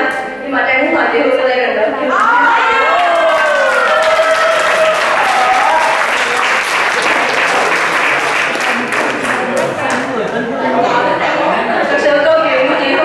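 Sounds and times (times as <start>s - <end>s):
people applauding: 2.8s - 10.3s.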